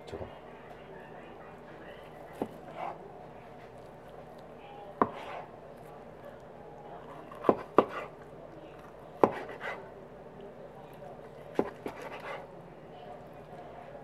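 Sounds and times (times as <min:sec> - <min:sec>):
knife slicing meat: 0:05.0 - 0:05.6, 0:07.1 - 0:08.2, 0:09.2 - 0:09.9, 0:11.3 - 0:12.5.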